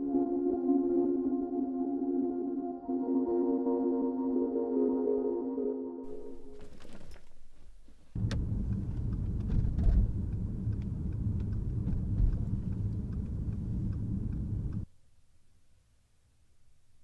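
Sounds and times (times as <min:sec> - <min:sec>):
car engine rumble: 0:06.1 - 0:14.9
road noise inside car: 0:07.1 - 0:14.9.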